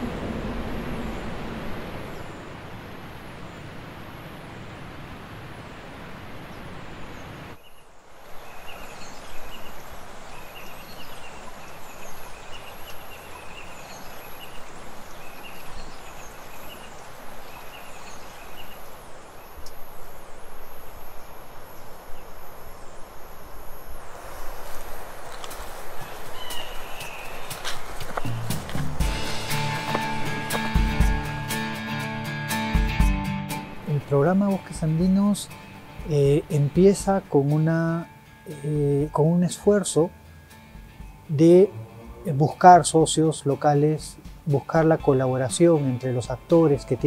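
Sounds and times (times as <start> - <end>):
steady noise: 0.0 - 9.0.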